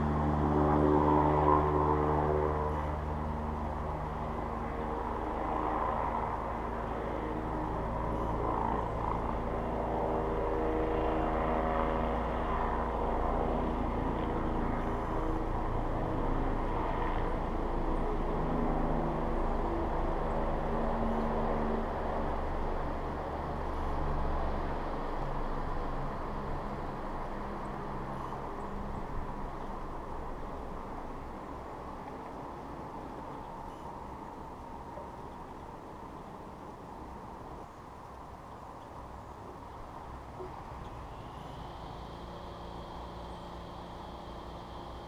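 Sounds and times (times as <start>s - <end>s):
road traffic engine rumble: 6.2s - 45.0s.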